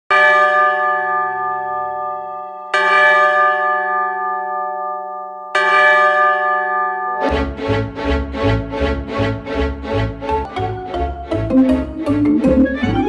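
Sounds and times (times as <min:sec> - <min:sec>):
large bell ringing: 0:00.1 - 0:07.3.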